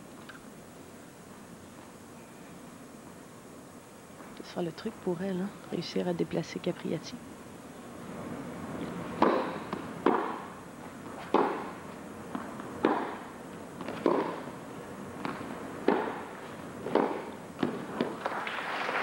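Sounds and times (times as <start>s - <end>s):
ball bouncing on court: 9.2s - 10.4s, 11.1s - 13.2s, 13.8s - 14.5s, 15.2s - 18.3s
tennis racket hitting ball: 9.2s - 14.5s, 15.2s - 18.2s.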